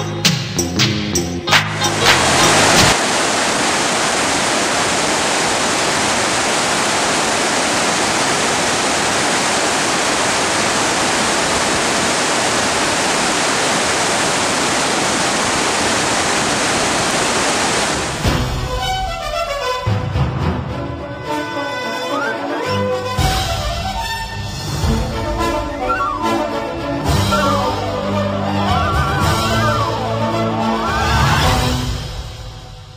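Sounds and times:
music: 0.0s - 2.9s, 18.3s - 32.9s
river water rushing over rocks: 1.9s - 18.4s, 25.7s - 31.7s.

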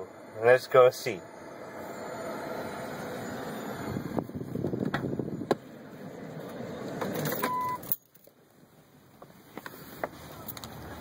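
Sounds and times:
car single-tone chime: 7.4s - 7.9s.

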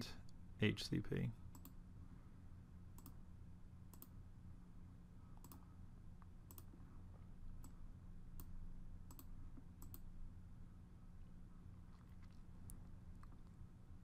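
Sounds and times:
faint low hum: 0.0s - 14.0s
computer mouse clicking: 1.5s - 1.8s, 3.0s - 3.2s, 3.9s - 4.2s, 5.4s - 5.7s, 6.5s - 6.8s, 8.4s - 10.1s.

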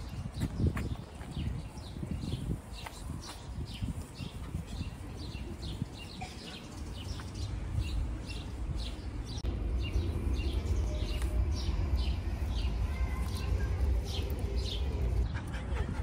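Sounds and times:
songbird chirping: 0.0s - 15.4s
low rumble: 9.4s - 16.0s.

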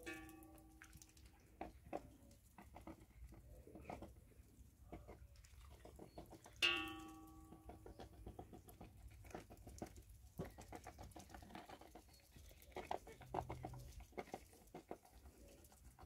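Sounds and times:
geese pecking in trough: 0.0s - 16.0s
metal clang: 6.6s - 7.5s.

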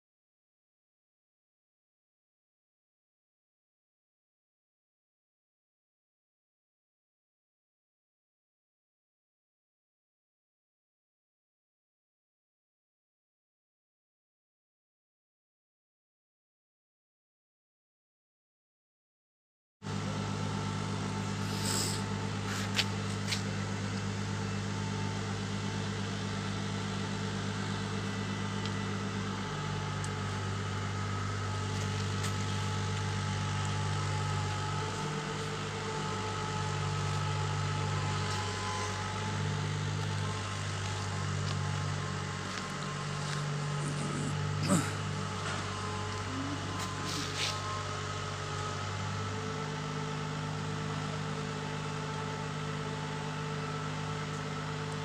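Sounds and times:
machine hum drone: 19.9s - 55.0s.

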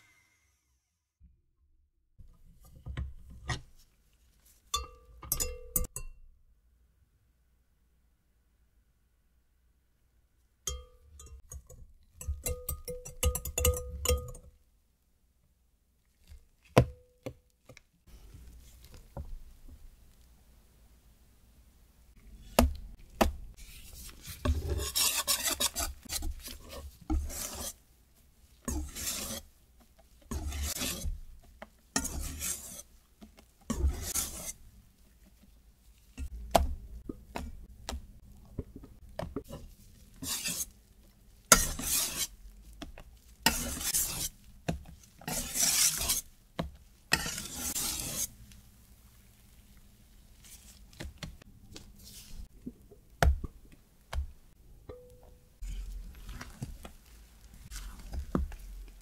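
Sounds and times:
whisk clicking against metal bowl: 10.7s - 14.4s
whisk stirring batter: 11.2s - 14.4s, 23.1s - 36.4s, 38.6s - 48.4s, 55.6s - 59.0s.

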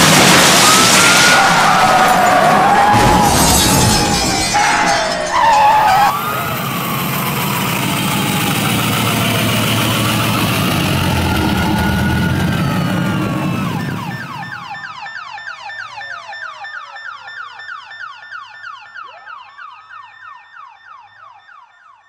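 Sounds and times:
police siren yelp and wail: 0.0s - 22.0s
vehicle engine running: 5.4s - 14.6s.

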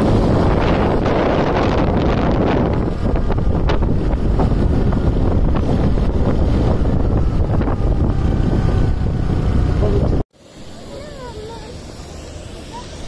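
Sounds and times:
wind buffeting microphone: 0.0s - 10.3s.

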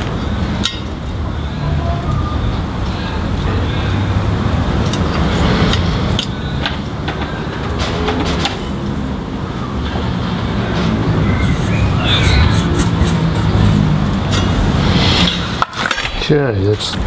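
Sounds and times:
low rumble: 3.7s - 15.7s.

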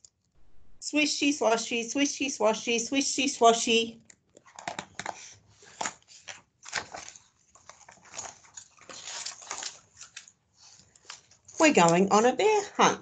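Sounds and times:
book pages turning: 4.3s - 12.0s.

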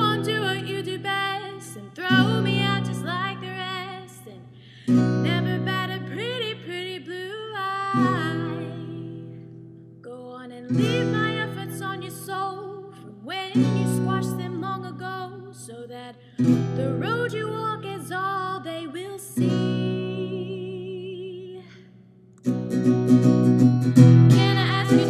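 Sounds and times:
woman singing blues: 0.0s - 22.0s, 24.0s - 25.0s
acoustic guitar chords strummed: 22.3s - 25.0s.

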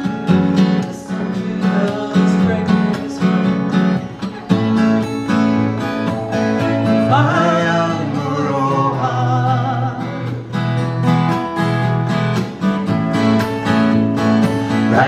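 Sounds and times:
acoustic guitars strumming: 0.0s - 15.0s
person singing: 0.6s - 10.5s, 14.7s - 15.0s.

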